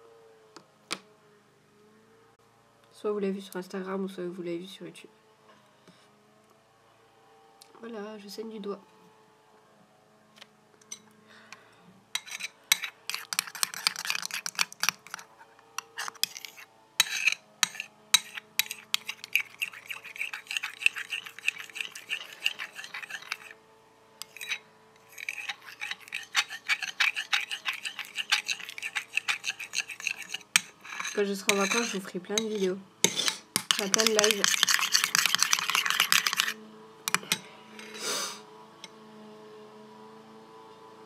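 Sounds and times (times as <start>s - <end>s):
utensil stirring slime in a bowl: 12.2s - 23.6s, 24.2s - 37.3s.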